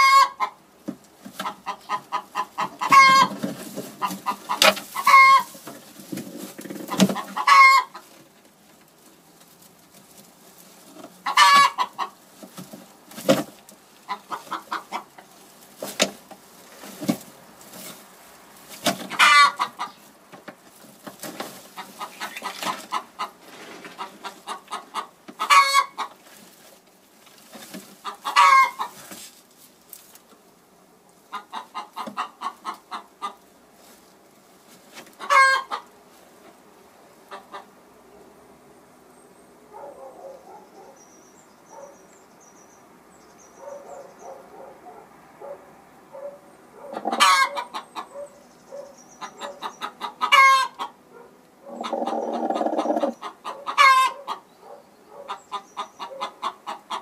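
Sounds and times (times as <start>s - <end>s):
hen clucking: 0.0s - 8.4s, 10.9s - 17.1s, 18.7s - 26.4s, 27.7s - 29.2s, 31.2s - 33.6s, 35.0s - 36.6s, 37.2s - 37.8s, 43.6s - 57.0s
hen squawking: 51.6s - 54.3s.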